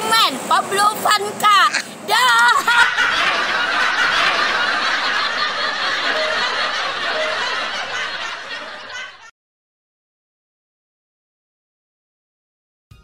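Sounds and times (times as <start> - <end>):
crowd laughing: 2.3 - 9.3.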